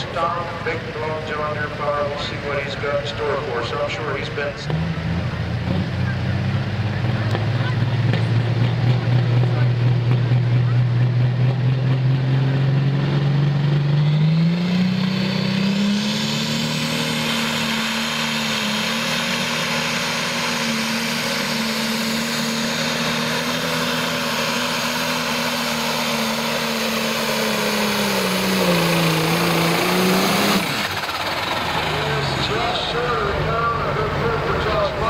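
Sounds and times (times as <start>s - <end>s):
diesel tractor engine under load: 0.0s - 35.0s.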